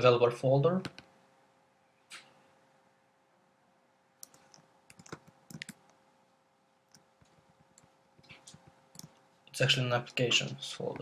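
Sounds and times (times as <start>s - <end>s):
faint steady hum: 0.0s - 11.0s
computer clicks and taps: 0.8s - 1.1s, 4.2s - 6.0s, 6.9s - 9.2s.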